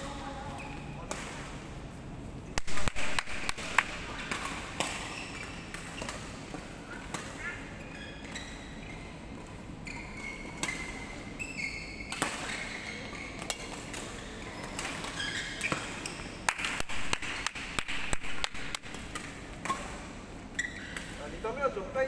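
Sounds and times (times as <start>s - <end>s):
shoes squeaking on court: 0.1s - 1.1s, 2.7s - 16.4s, 18.3s - 21.3s
rackets hitting shuttlecocks: 2.6s - 7.6s, 13.4s - 20.1s.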